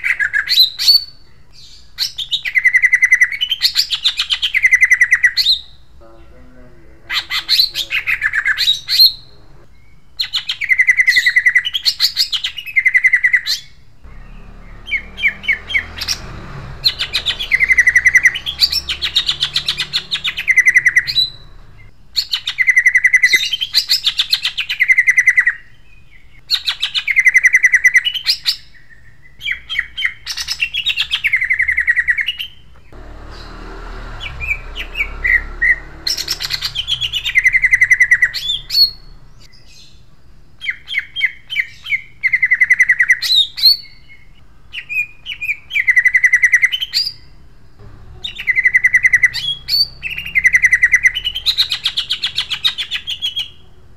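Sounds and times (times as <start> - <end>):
bird singing loudly: 0.0 - 5.9, 7.0 - 40.0, 40.6 - 47.4, 48.1 - 53.8.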